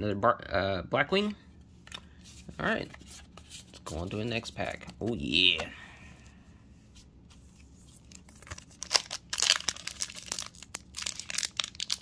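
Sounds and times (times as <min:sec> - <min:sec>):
foil wrapper crinkling and tearing: 0:08.0 - 0:12.0.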